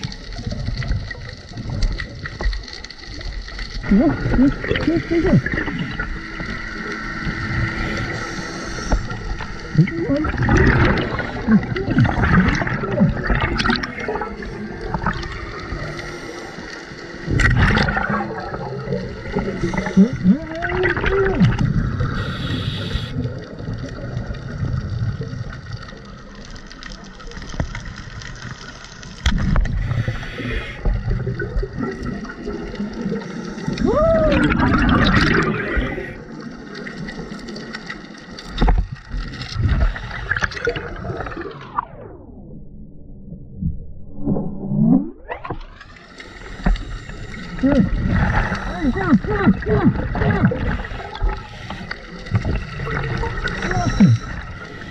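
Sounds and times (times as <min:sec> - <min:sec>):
underwater bubbles gurgling: 0:00.0 - 0:54.9.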